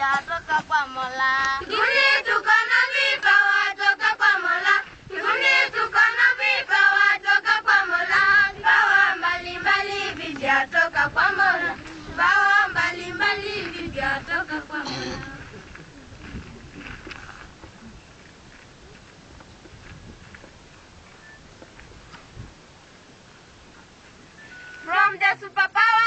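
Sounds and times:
girls singing together: 0:00.0 - 0:15.5, 0:24.9 - 0:26.0.

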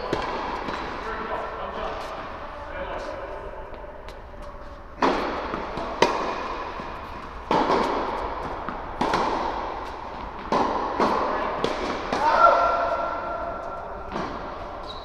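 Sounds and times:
tennis ball bouncing on court: 0:00.0 - 0:01.0, 0:05.0 - 0:12.9
tennis ball struck by racquets: 0:00.0 - 0:01.0, 0:05.0 - 0:14.8.

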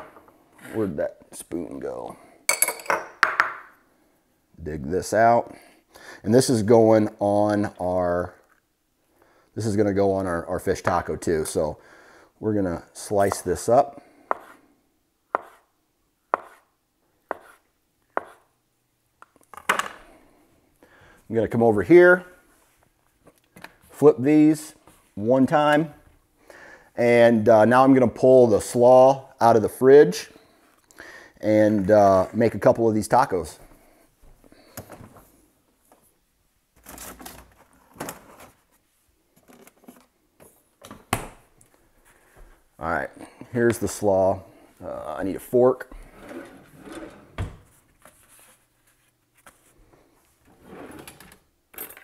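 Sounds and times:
items rustling on fridge shelves: 0:34.6 - 0:41.1, 0:45.9 - 0:51.3.

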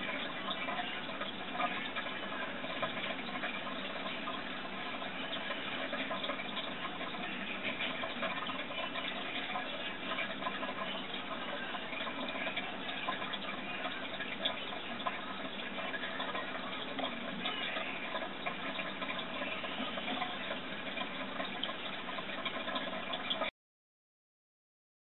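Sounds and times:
bubbling aquarium water: 0:00.0 - 0:23.5.

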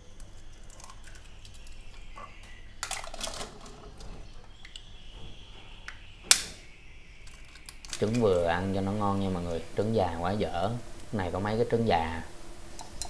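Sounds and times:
egg shells cracking: 0:00.0 - 0:04.9, 0:07.1 - 0:09.3.

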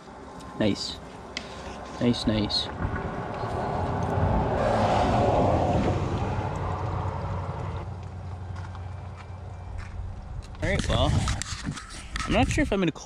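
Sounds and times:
vehicle passing on road: 0:00.0 - 0:11.4.

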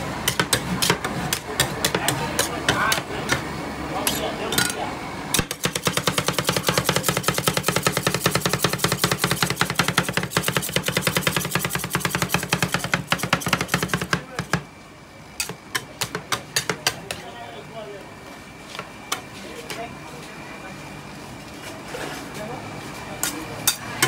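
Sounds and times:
metal spatulas chopping on steel plate: 0:00.2 - 0:03.4, 0:04.0 - 0:14.6, 0:15.4 - 0:17.2, 0:23.2 - 0:24.0.

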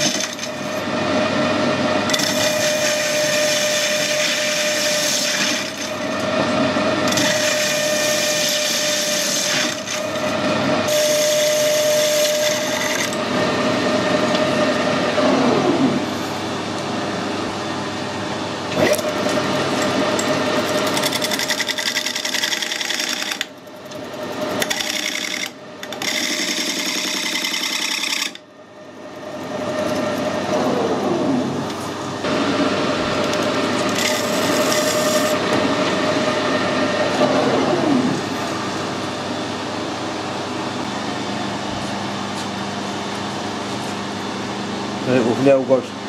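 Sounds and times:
metal cutting noise: 0:00.0 - 0:16.2, 0:18.6 - 0:38.4
metal lathe gear whine: 0:00.0 - 0:41.6.

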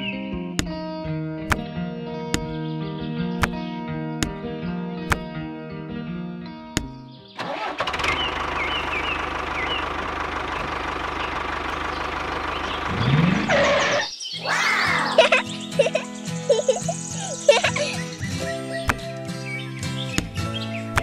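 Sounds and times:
diesel tractor engine chugging: 0:07.4 - 0:14.1.

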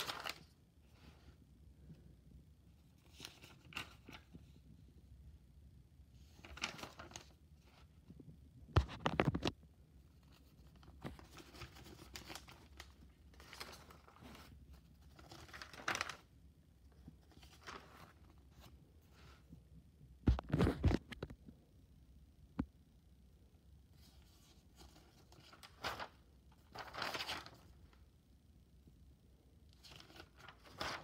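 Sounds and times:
notebook pages turning: 0:00.0 - 0:00.5, 0:03.0 - 0:04.4, 0:06.3 - 0:07.9, 0:08.8 - 0:09.6, 0:10.3 - 0:16.3, 0:17.1 - 0:19.4, 0:20.3 - 0:21.3, 0:24.0 - 0:27.7, 0:29.8 - 0:31.0.

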